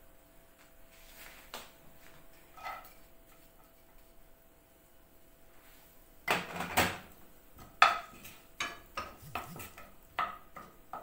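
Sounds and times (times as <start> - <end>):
wooden spoon scraping a frying pan: 2.4 - 3.9, 7.8 - 11.0.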